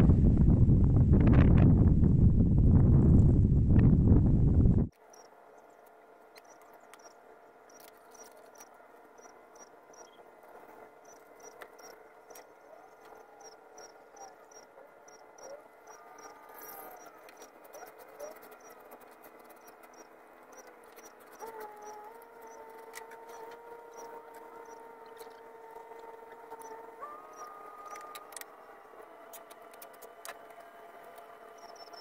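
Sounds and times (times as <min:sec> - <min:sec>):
faint steady hum: 0:00.0 - 0:32.0
insect chirps: 0:05.0 - 0:05.7, 0:06.4 - 0:10.2, 0:11.0 - 0:18.8, 0:19.4 - 0:28.8, 0:31.5 - 0:32.0.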